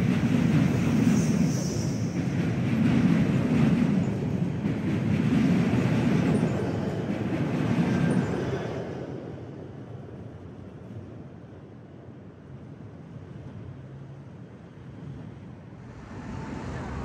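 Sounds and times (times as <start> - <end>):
train wheels on rails: 0.0 - 9.8, 13.3 - 17.0.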